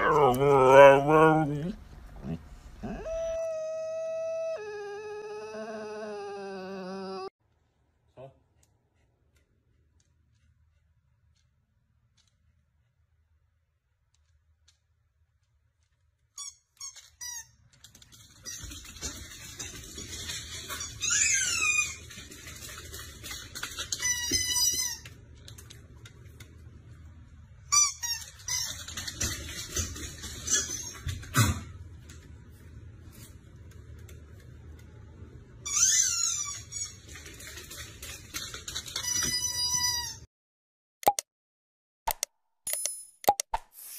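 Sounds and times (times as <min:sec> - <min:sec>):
dog yowling and whining: 0:00.0 - 0:07.4.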